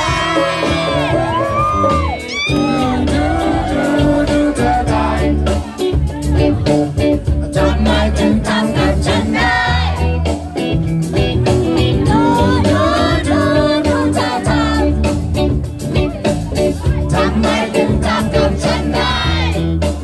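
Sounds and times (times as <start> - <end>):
person singing: 0.0 - 6.2, 7.3 - 9.7, 11.8 - 15.0
live reggae band playing: 0.0 - 20.0.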